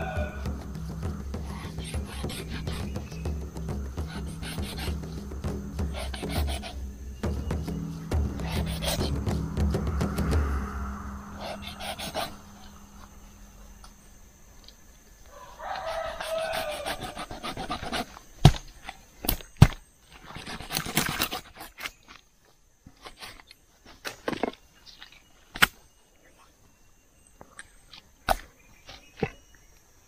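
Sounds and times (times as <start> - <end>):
drawn-out animal-like cry: 0.0 - 9.6, 15.3 - 18.1
knife scraping and sawing: 4.0 - 5.2, 5.8 - 9.3, 11.4 - 12.4, 15.8 - 18.2.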